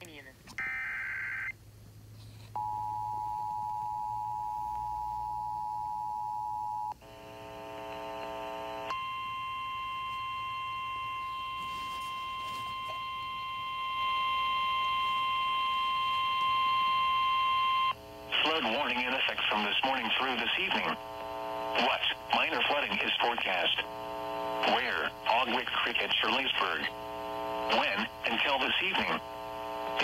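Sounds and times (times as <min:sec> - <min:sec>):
steady alarm tone: 0:08.9 - 0:19.0.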